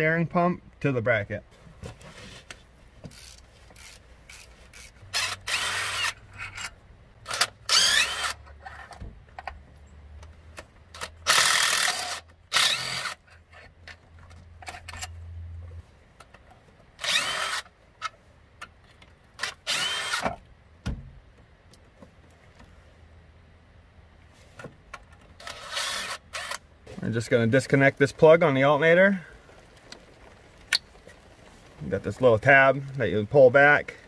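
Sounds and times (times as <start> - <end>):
cordless power tool spinning: 3.1 - 6.2, 7.3 - 8.4, 11.2 - 13.2, 17.0 - 17.7, 19.4 - 20.3, 25.4 - 26.6.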